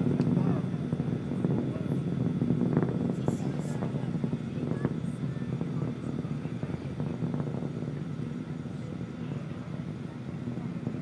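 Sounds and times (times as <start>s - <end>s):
distant rocket engine rumble: 0.0s - 11.0s.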